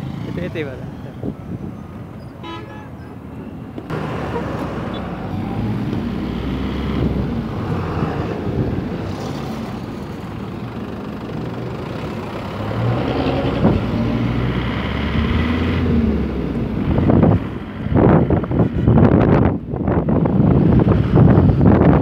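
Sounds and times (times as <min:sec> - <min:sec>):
truck engines and traffic rumble: 0:00.0 - 0:22.0.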